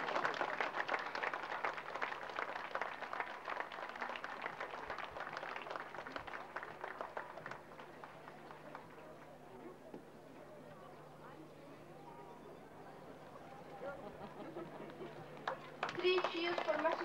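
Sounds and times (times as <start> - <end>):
crowd applauding: 0.0 - 9.5, 14.0 - 17.0.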